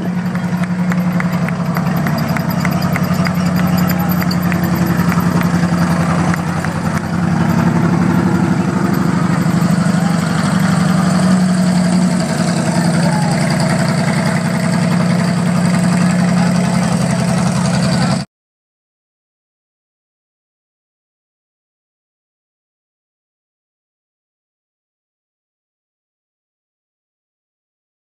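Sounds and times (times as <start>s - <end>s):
tank engine running: 0.0s - 18.3s.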